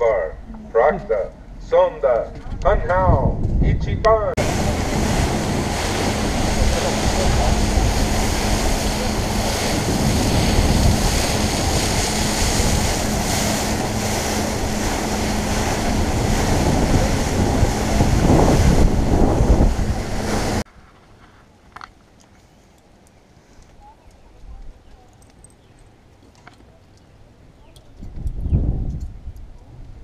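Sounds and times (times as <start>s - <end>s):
wind buffeting microphone: 2.3s - 20.7s, 27.8s - 30.0s
steady low hum: 4.3s - 20.7s
water rushing along hull: 4.4s - 20.7s.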